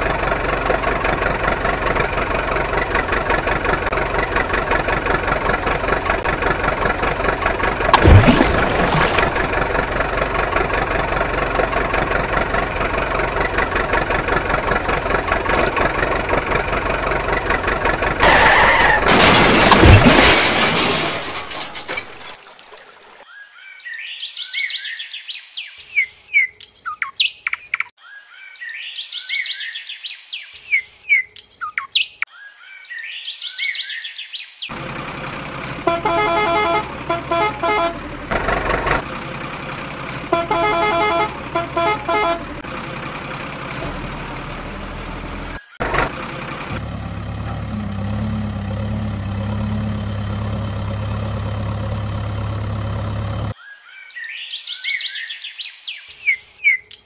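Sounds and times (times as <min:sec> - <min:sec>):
birds chirping: 0:23.3 - 0:34.8, 0:53.6 - 0:57.0
vehicle horn honking: 0:35.8 - 0:38.1, 0:40.3 - 0:42.6.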